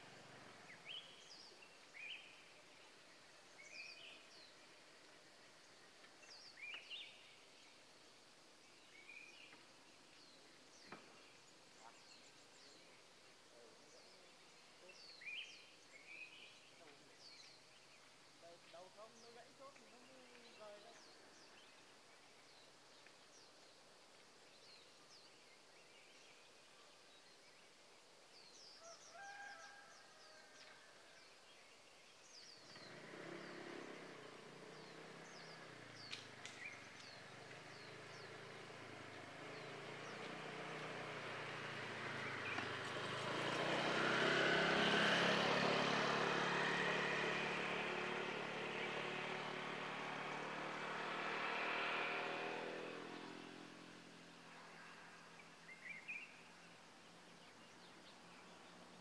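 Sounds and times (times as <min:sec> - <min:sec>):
vehicle engine approaching: 0:00.0 - 0:01.6, 0:32.5 - 0:59.0
birds chirping faintly: 0:00.0 - 0:59.0.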